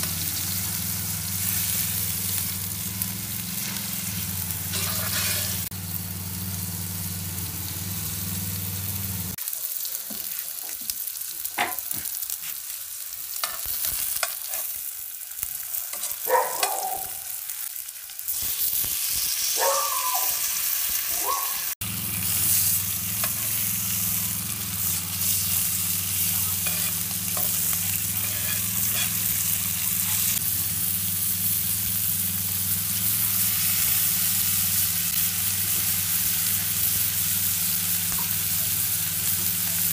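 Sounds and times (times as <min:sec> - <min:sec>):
food sizzling in a pan: 0:00.0 - 0:39.9
utensil scraping a pan: 0:04.7 - 0:05.7, 0:26.5 - 0:30.4.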